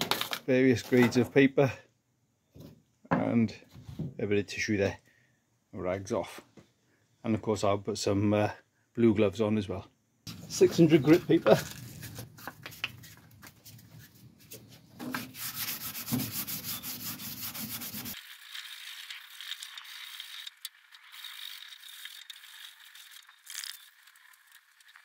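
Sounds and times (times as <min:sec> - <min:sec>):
sandpaper rasping on paint: 0:15.1 - 0:18.2.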